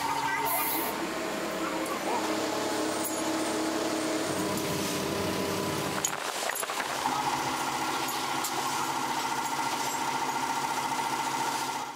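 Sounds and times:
high-pitched hum with rattle: 0:00.0 - 0:04.7
workshop machinery running: 0:00.0 - 0:11.9.

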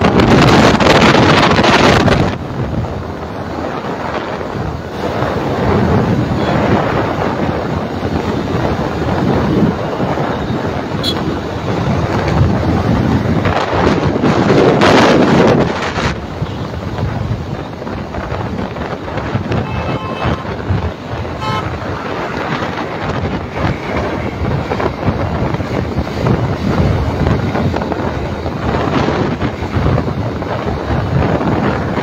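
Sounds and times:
wind and road noise: 0:00.0 - 0:32.0
vehicle horn toot: 0:10.9 - 0:11.4, 0:19.5 - 0:20.7, 0:21.4 - 0:21.9.

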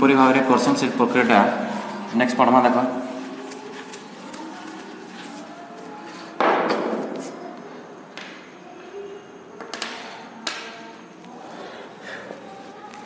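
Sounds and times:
objects tapped and clicked on table: 0:09.6 - 0:10.7.

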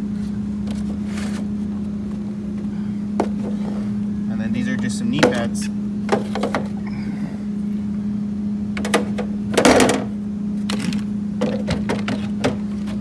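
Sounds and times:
machine hum: 0:00.0 - 0:13.0
tools knocking and rattling: 0:10.7 - 0:12.6.

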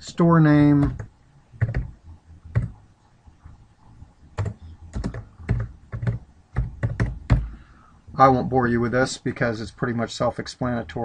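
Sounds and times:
keyboard typing: 0:00.8 - 0:02.8, 0:04.4 - 0:07.6.

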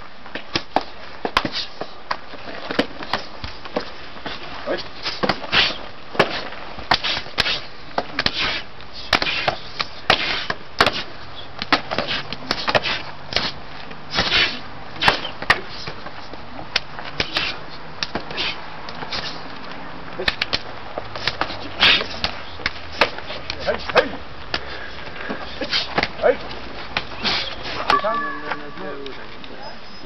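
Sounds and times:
slaps of forearms striking: 0:05.0 - 0:16.1, 0:16.7 - 0:19.3, 0:20.2 - 0:24.6.

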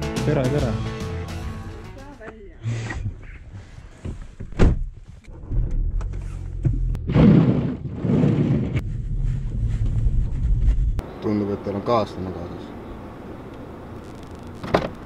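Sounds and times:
car door shutting: 0:04.0 - 0:06.9, 0:14.6 - 0:15.0
car engine rumble from inside: 0:08.8 - 0:11.0.

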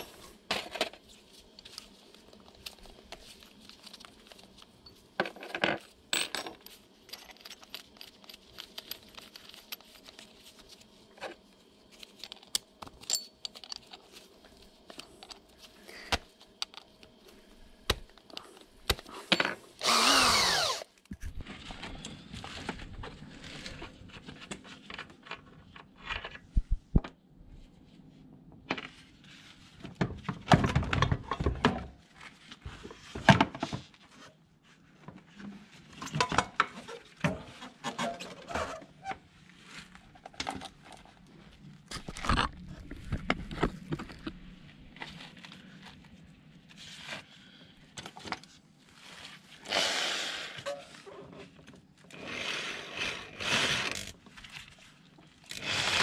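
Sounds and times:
metal tools clinking: 0:13.0 - 0:14.0
power drill: 0:19.8 - 0:20.9, 0:52.1 - 0:54.1, 0:55.5 - 0:56.0.

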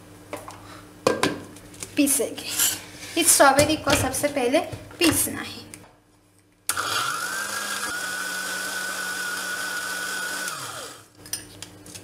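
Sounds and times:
blender motor whine: 0:06.7 - 0:11.1.

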